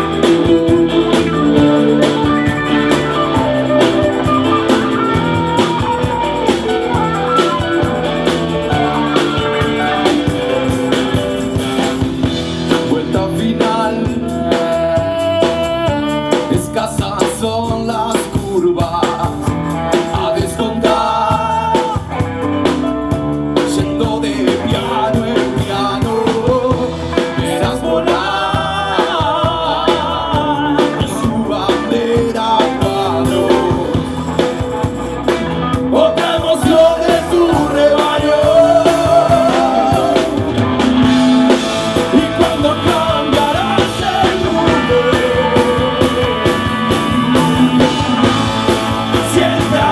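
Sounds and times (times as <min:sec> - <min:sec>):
saxophone: 0:00.0 - 0:11.8, 0:14.1 - 0:17.2, 0:37.6 - 0:49.9
drums: 0:00.0 - 0:49.9
electric guitars: 0:00.0 - 0:49.9
keyboard: 0:00.0 - 0:49.9
man singing into a microphone: 0:12.7 - 0:22.4, 0:23.6 - 0:34.4, 0:35.7 - 0:49.9.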